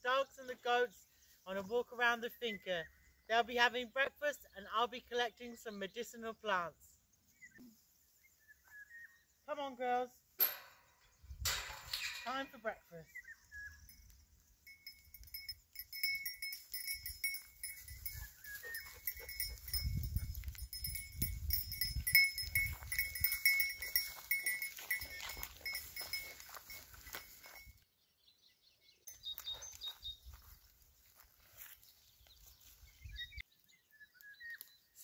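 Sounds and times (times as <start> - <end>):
goat bell clinking: 10.4 - 12.8, 13.7 - 27.8
footsteps rustling in grass: 16.5 - 27.8, 29.2 - 33.4.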